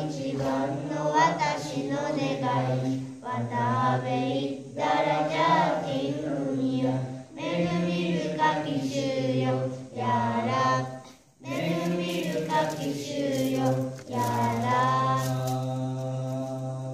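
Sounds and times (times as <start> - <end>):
girls singing together: 0.0 - 16.9.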